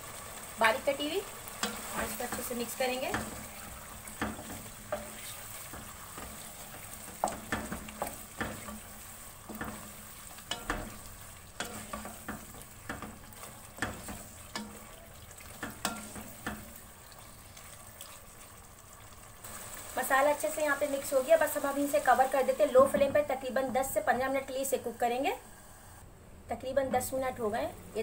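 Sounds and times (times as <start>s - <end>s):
food sizzling in oil: 0.0s - 25.9s
utensil scraping and knocking pan: 1.6s - 16.8s.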